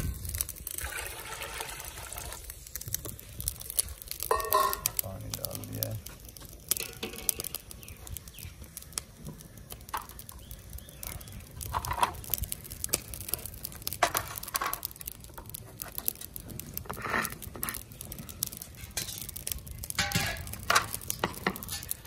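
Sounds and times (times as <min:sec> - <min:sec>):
cookware clinking: 0:04.3 - 0:04.9.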